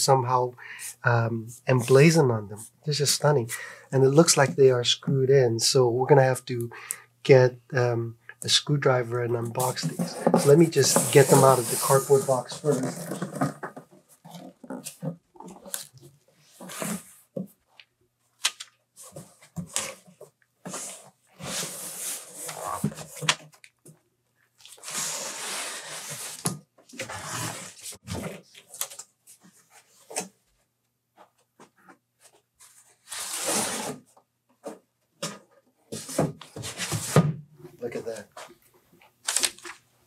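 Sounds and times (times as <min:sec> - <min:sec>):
cardboard scraping and rustling: 0:09.6 - 0:17.5, 0:32.4 - 0:37.3.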